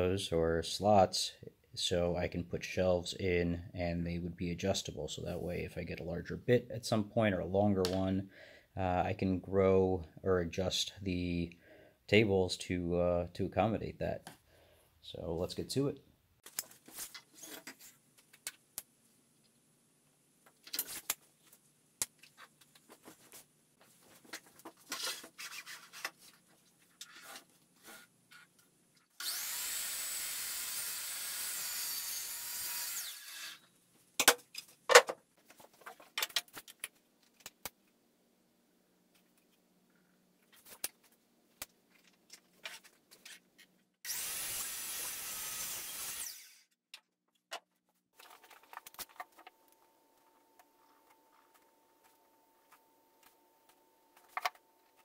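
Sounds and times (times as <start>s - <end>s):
miter saw cutting plywood: 29.2s - 33.6s, 44.1s - 46.7s.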